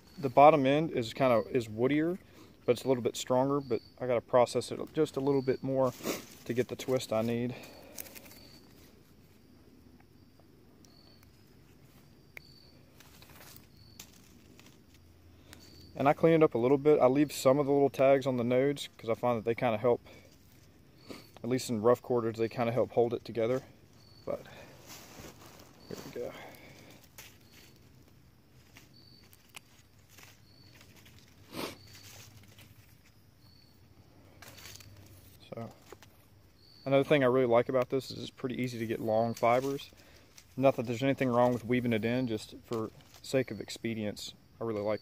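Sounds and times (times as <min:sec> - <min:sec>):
rustling and scraping of vine: 0:00.0 - 0:09.6, 0:10.9 - 0:45.0
faint woodland ambience: 0:00.0 - 0:45.0
high bird chirps: 0:15.4 - 0:16.1.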